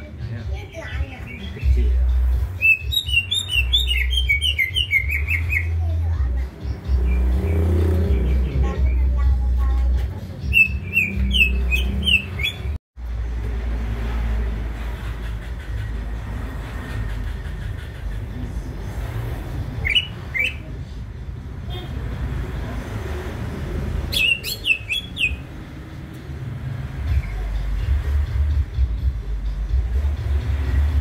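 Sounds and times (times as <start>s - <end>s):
bird chirping song: 0.8s - 5.8s, 6.4s - 9.6s, 10.3s - 12.8s, 19.7s - 21.0s, 24.0s - 25.7s.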